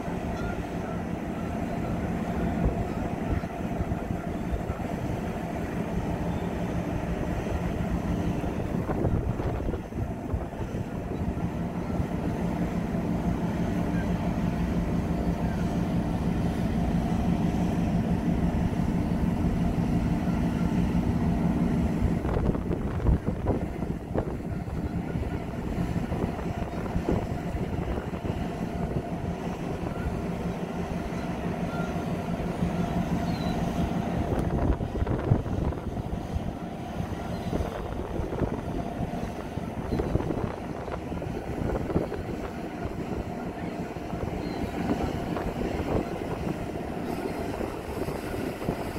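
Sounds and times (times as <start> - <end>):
diesel engine humming: 0.0 - 48.9
wind on microphone: 7.3 - 11.5, 21.7 - 30.0, 33.8 - 48.9.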